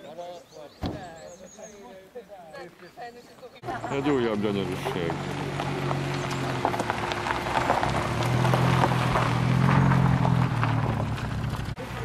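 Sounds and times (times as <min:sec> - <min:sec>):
tyres crunching over gravel: 0:03.6 - 0:12.0
car engine running at low revs: 0:03.7 - 0:12.0.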